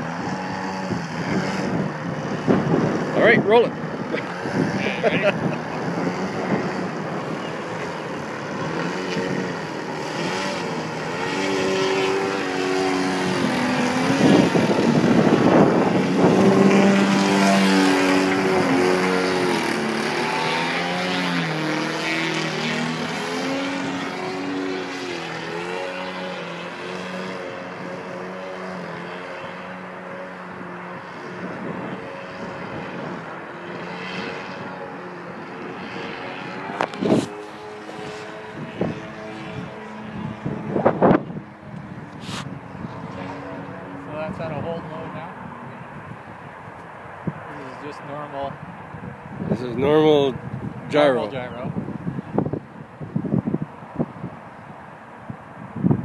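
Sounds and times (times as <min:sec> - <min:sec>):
model plane motor humming: 0:00.0 - 0:44.1.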